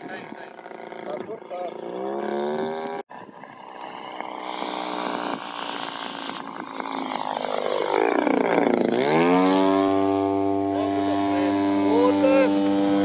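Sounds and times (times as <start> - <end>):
model plane engine and propeller: 0.0 - 13.0.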